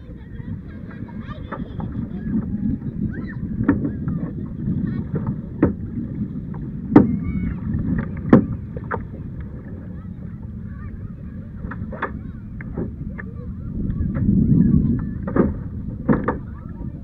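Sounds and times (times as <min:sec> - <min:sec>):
paddle strokes splashing: 0:00.0 - 0:17.0
water rushing along hull: 0:00.0 - 0:17.0
faint clicks: 0:11.6 - 0:14.3.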